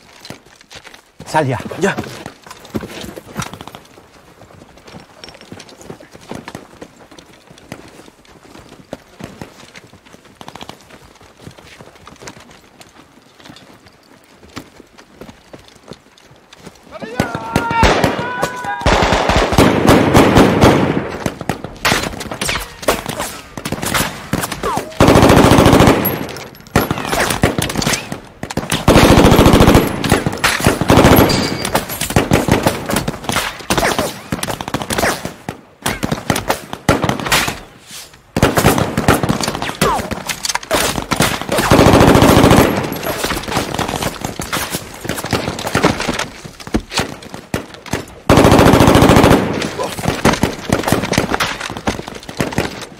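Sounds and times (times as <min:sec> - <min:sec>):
automatic weapons fire: 0:18.8 - 0:22.2.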